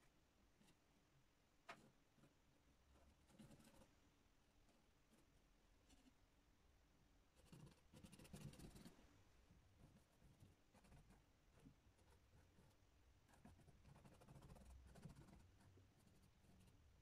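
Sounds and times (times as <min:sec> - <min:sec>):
paintbrush scratching on canvas: 0:03.0 - 0:03.9, 0:07.4 - 0:09.0, 0:09.8 - 0:16.8.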